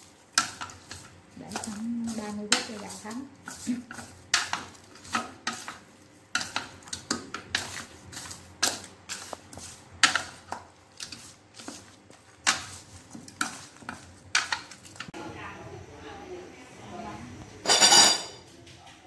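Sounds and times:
chopsticks clinking on metal bowl: 0.3s - 15.1s.

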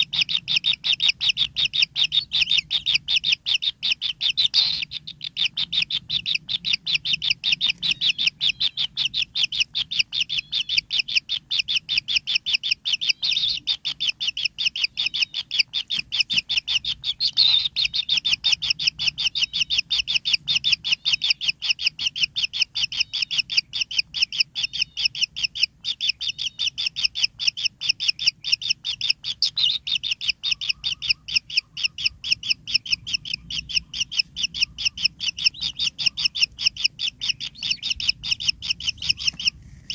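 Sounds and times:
birds chirping: 0.0s - 39.9s.

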